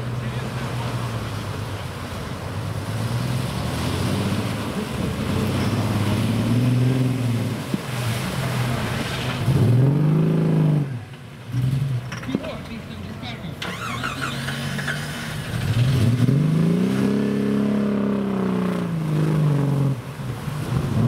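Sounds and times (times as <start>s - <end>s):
wheels spinning in mud and water: 0.0s - 10.8s, 13.6s - 21.0s
engine revving: 2.8s - 12.0s, 13.6s - 20.0s.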